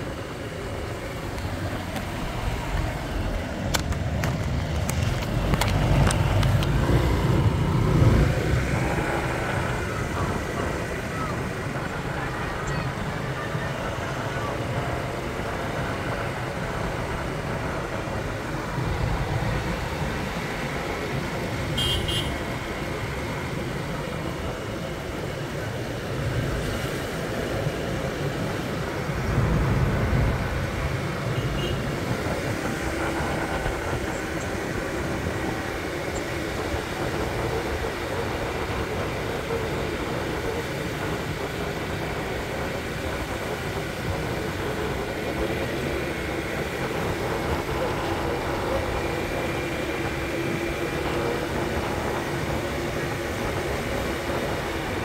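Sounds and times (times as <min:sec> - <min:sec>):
road noise: 0:00.0 - 0:55.0
wind rush: 0:22.4 - 0:55.0
low rumble: 0:29.0 - 0:31.2.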